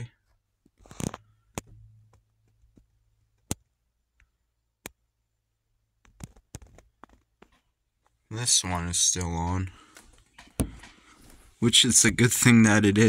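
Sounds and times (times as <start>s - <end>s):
sharp clicks and taps: 0.6s - 5.0s.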